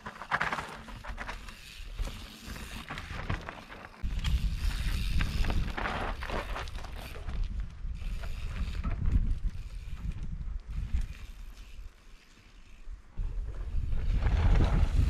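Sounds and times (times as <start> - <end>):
wind buffeting microphone: 4.0 - 11.5, 13.2 - 15.0.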